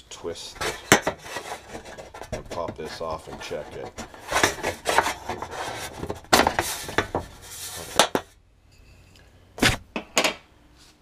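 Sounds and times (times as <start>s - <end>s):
screwdriver scraping plastic: 0.6s - 7.0s.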